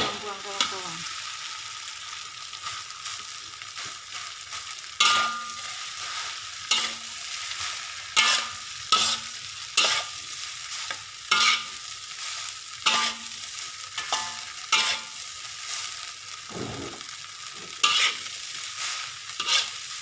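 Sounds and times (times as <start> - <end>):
steady sizzle: 0.0 - 20.0
spatula scraping rice in wok: 3.7 - 20.0
spatula clanging on wok: 5.0 - 5.7, 6.7 - 7.1, 8.2 - 10.1, 11.3 - 11.8, 12.8 - 13.4, 14.0 - 15.2, 17.8 - 18.2, 19.4 - 19.7.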